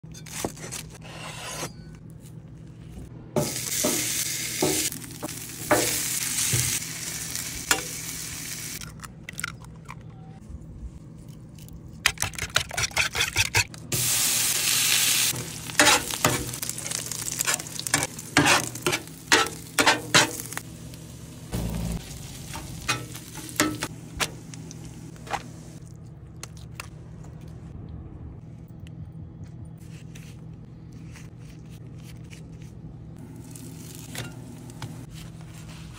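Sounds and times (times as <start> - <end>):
food sizzling on a griddle: 3.4 - 8.8, 14.0 - 23.8
taps and scrapes on griddle: 15.8 - 16.6, 17.4 - 20.5.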